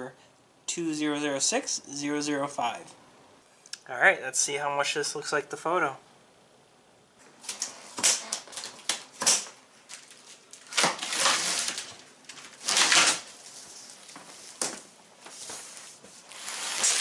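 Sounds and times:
cardboard scraping and rustling: 9.9s - 17.0s.

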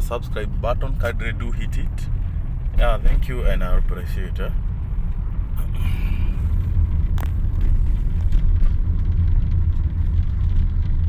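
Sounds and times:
car engine rumble: 0.0s - 11.0s
road noise: 0.0s - 11.0s.

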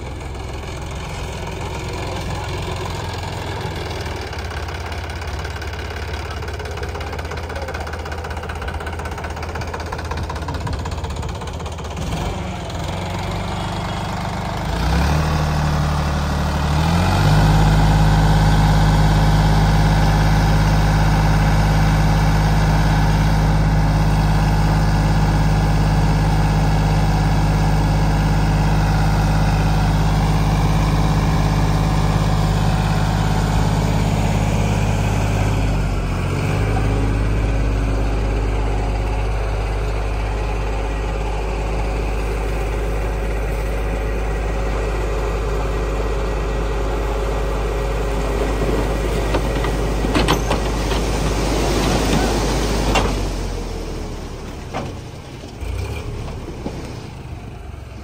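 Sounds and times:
tractor diesel engine revving: 0.0s - 58.0s.

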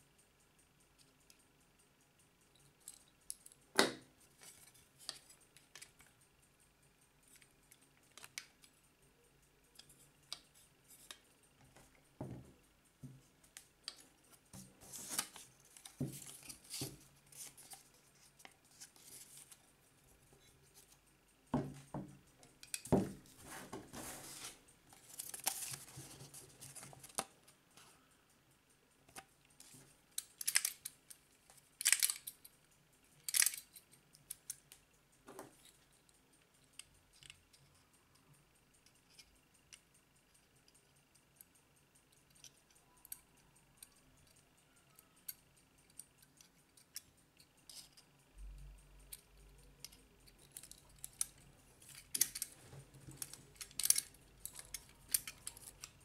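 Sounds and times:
clock parts clicking and scraping: 2.3s - 28.2s, 29.1s - 56.0s
scratchy strokes: 23.3s - 24.7s.

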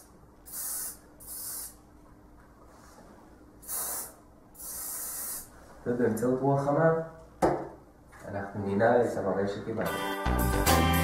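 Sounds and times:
aerosol spray hissing: 0.0s - 1.8s, 3.6s - 5.5s.

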